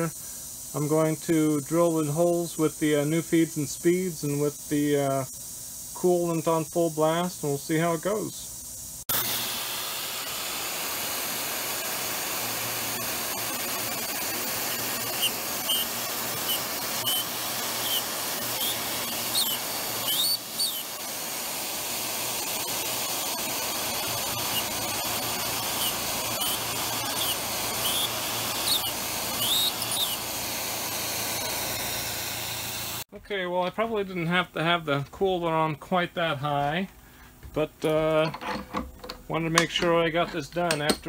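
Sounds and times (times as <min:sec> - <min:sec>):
mist coolant sprayer hissing: 0:00.0 - 0:33.1
drill bit squealing: 0:10.0 - 0:33.0.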